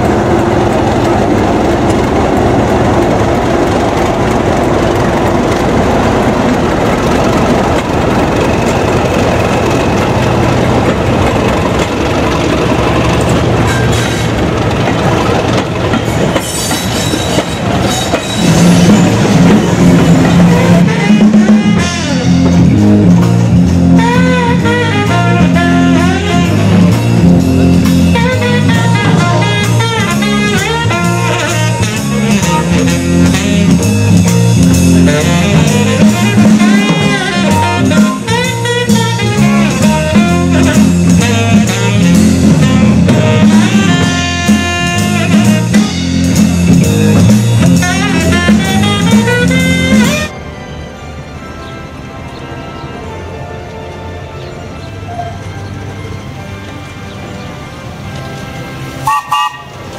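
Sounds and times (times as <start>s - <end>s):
jazz band playing: 0.0s - 59.9s
saxophone melody: 19.0s - 59.9s.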